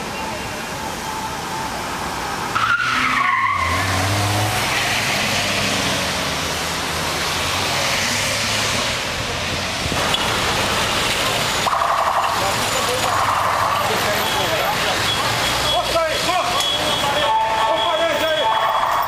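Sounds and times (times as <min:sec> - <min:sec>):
trucks driving past at speed: 0:02.0 - 0:19.0
tire squeal: 0:02.5 - 0:05.6.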